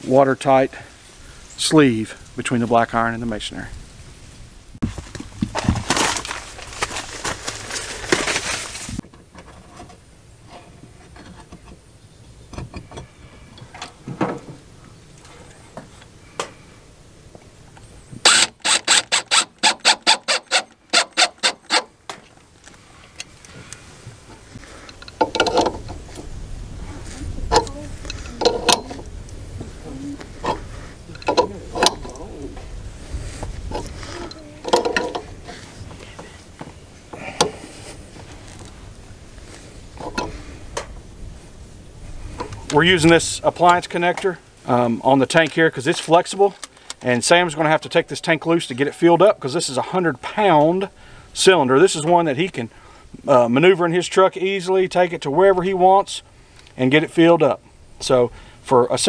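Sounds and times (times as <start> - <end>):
cordless drill driving screw: 18.2 - 21.9.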